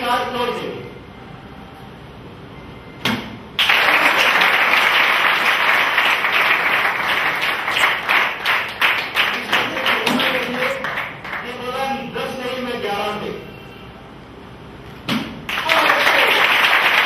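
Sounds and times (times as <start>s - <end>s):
crowd applauding: 3.6s - 11.7s, 15.5s - 17.0s.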